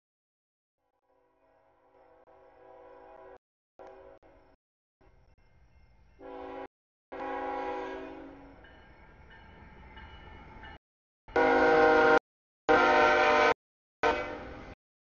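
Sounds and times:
locomotive air horn blasts: 1.8 - 4.4, 6.2 - 8.4, 11.3 - 14.8.

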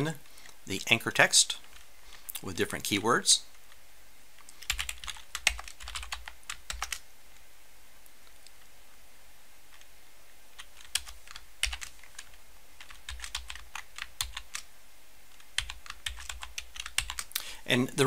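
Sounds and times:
computer keyboard typing: 4.5 - 7.0, 10.6 - 14.7, 15.4 - 17.4.

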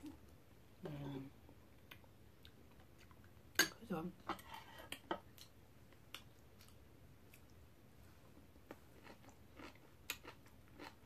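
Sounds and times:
soft chewing: 1.5 - 3.6, 4.4 - 11.0.

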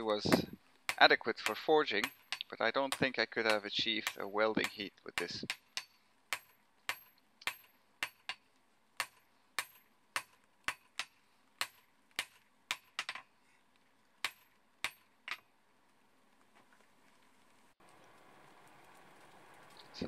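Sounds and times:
hammer striking steel on anvil: 0.3 - 8.4, 9.0 - 13.3, 14.2 - 15.4.

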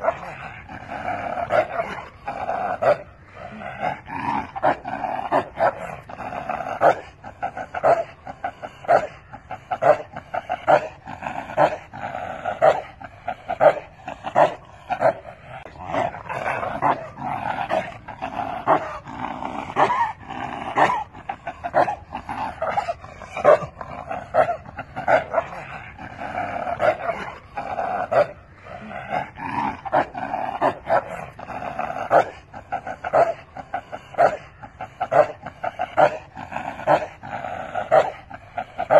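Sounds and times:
dog barking: 12.6 - 12.9.

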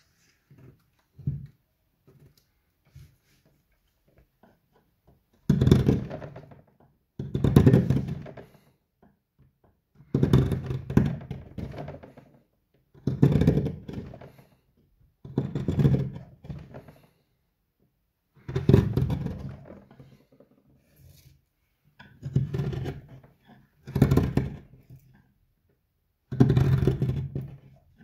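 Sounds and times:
chisel scraping through wood: 22.2 - 23.2.

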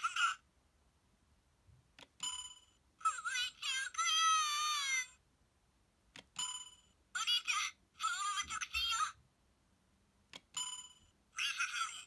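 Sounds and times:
toy clicks: 2.0 - 2.7, 10.3 - 11.0.

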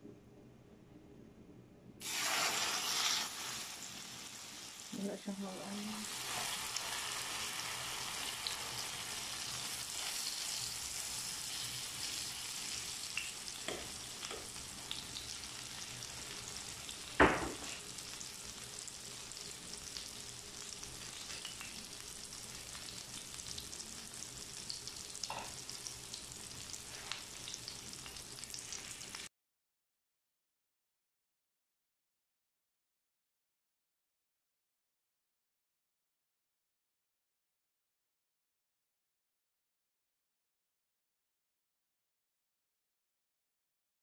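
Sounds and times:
omelette sizzling in oil: 2.0 - 29.3.

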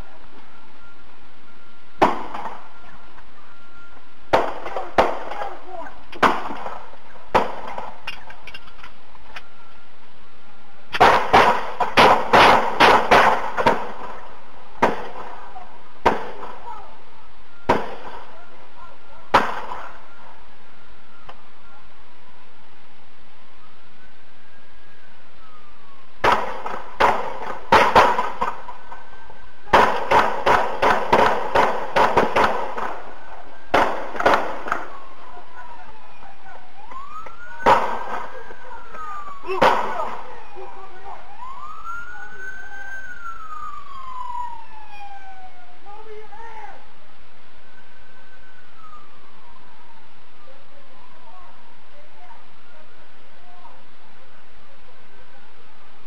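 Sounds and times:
gunshots: 2.0 - 2.7, 4.3 - 8.0, 10.9 - 16.6, 17.7 - 18.3, 19.3 - 20.0, 26.2 - 28.7, 29.7 - 33.1, 33.7 - 35.0, 37.6 - 38.6, 39.5 - 40.4.

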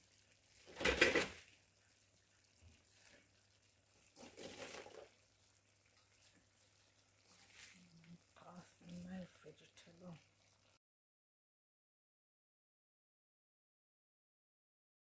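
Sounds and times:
vegetables dropped into pot: 0.7 - 1.4.

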